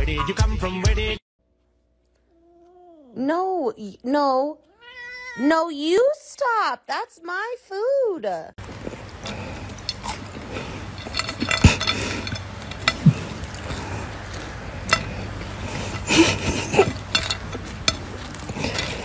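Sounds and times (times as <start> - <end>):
ceramic plate clinking and scraping: 9.2 - 14.0.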